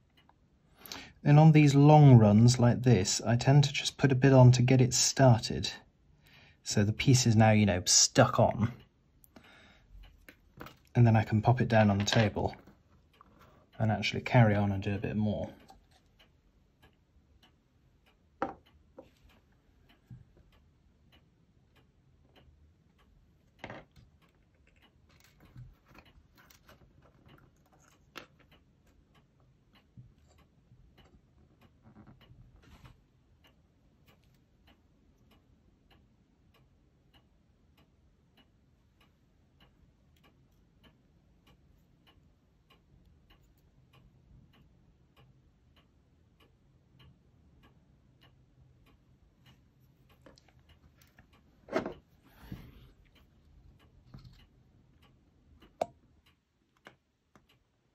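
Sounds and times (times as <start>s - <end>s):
faint steady ticking: 0.0s - 57.9s
small parts clicking and knocking: 10.1s - 11.0s, 18.4s - 19.2s, 23.4s - 29.0s.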